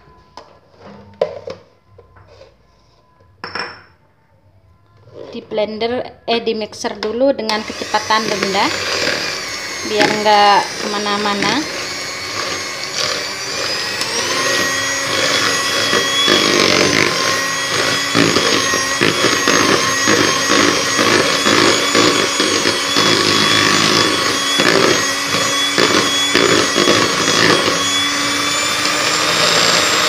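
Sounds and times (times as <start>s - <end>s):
hand mixer motor whine: 6.9s - 30.0s.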